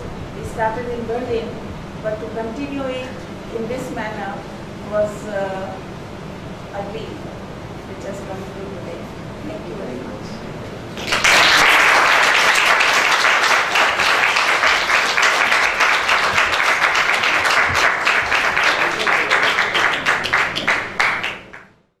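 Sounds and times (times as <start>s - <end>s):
audience applauding: 11.0s - 21.8s.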